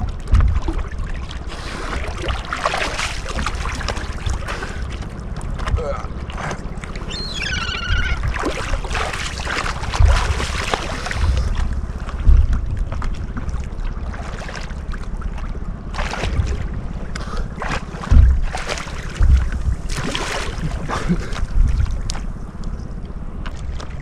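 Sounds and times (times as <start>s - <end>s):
seawater sloshing and splashing: 0.0s - 24.0s
wind buffeting microphone: 1.9s - 14.2s, 14.8s - 24.0s
gull call: 7.1s - 8.2s.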